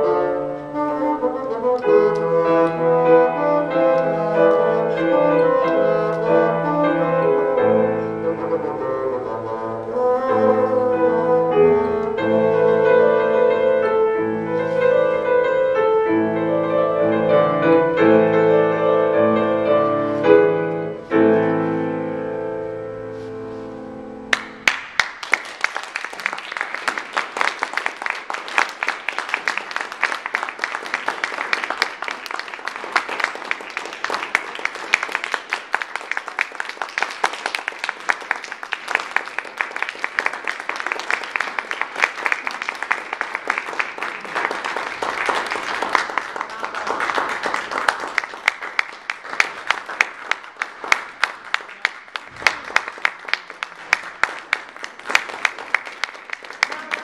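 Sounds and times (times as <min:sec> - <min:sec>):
audience applauding: 0:24.3 - 0:57.0.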